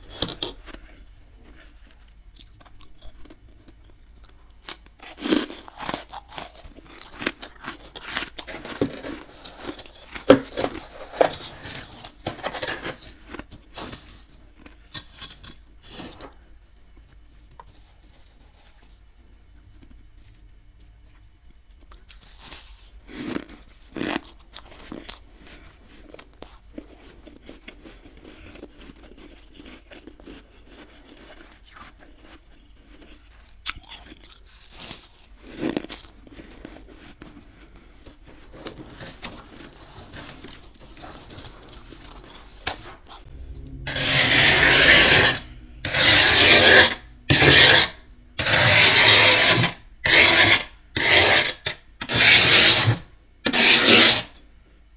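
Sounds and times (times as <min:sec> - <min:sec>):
frost crunching and crackling: 0:00.0 - 0:16.4, 0:21.8 - 0:44.8
metal scraper rasping through frost: 0:43.8 - 0:54.4.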